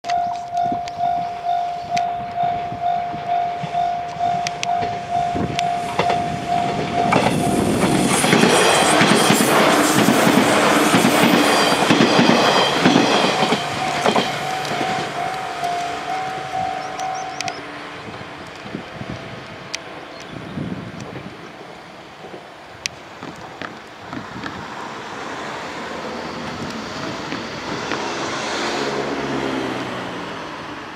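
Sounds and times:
train wheels clattering on rails: 0:03.1 - 0:20.3, 0:23.0 - 0:29.0.

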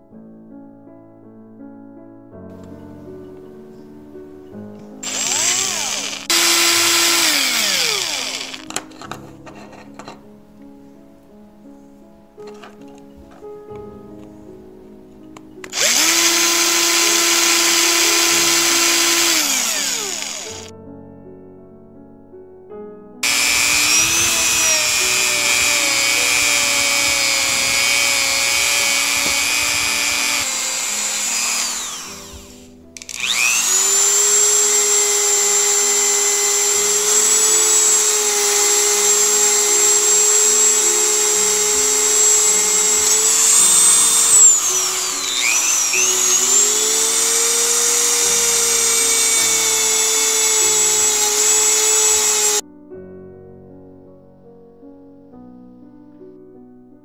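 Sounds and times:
soft background music: 0:00.0 - 0:57.0
rotary tool whining: 0:05.0 - 0:09.1, 0:15.6 - 0:20.7, 0:23.2 - 0:52.6.

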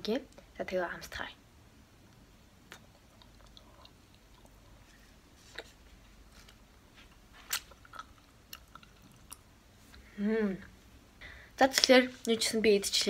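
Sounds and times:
wet mouth clicks: 0:02.6 - 0:04.7
chewing candy: 0:02.7 - 0:04.9, 0:07.4 - 0:09.5.

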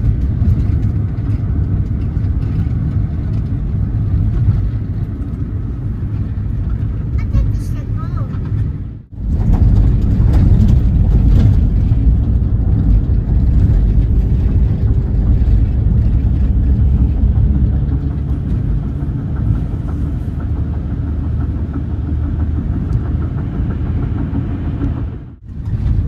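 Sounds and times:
van engine and road noise: 0:00.0 - 0:26.0.

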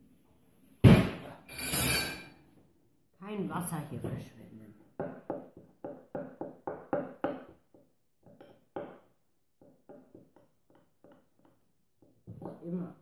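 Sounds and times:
spoon stirring icing in a bowl: 0:05.4 - 0:12.7.

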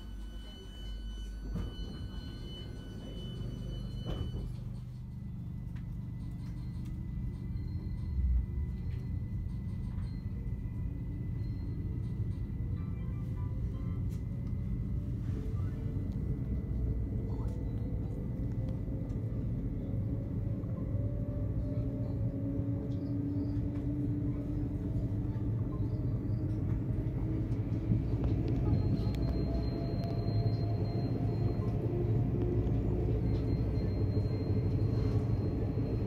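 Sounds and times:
train running gear rumble: 0:00.0 - 0:36.0
train whining tones rising: 0:14.5 - 0:36.0.

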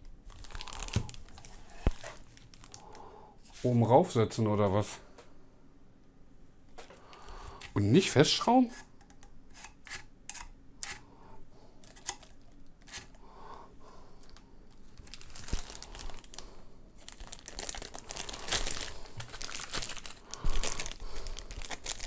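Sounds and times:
plastic packaging crinkling: 0:00.3 - 0:03.0, 0:14.2 - 0:22.0.

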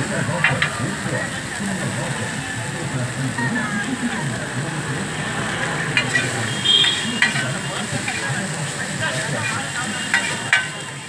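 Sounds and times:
noodles sizzling on griddle: 0:00.0 - 0:11.0
metal spatulas scraping griddle: 0:05.8 - 0:10.8.

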